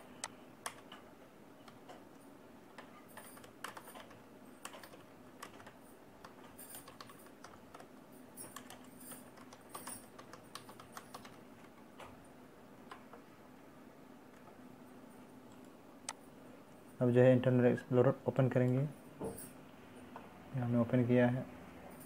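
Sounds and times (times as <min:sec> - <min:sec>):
low steady hum: 0:00.0 - 0:22.0
keyboard typing clicks: 0:00.2 - 0:02.0, 0:02.7 - 0:12.2.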